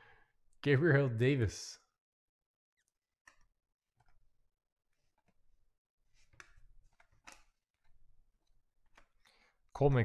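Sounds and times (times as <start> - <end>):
cards sliding and clicking: 6.1 - 8.0.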